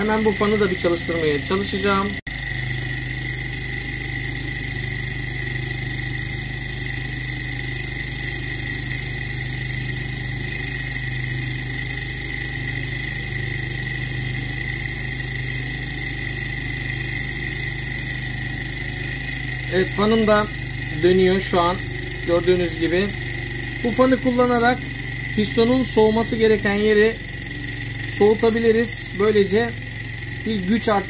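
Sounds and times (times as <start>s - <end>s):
engine generator hum and whine: 0.0s - 31.0s.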